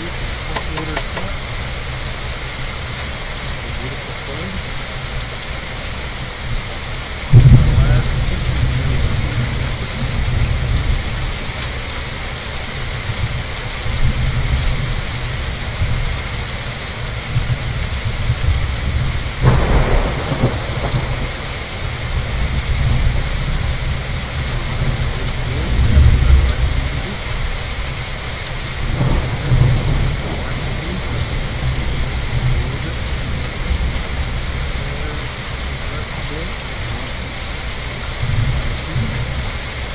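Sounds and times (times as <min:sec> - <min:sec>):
low thunder rumbling: 0:00.0 - 0:39.9
steady rain: 0:00.0 - 0:39.9
thunder crack: 0:07.3 - 0:11.4, 0:18.4 - 0:27.5, 0:28.8 - 0:39.4.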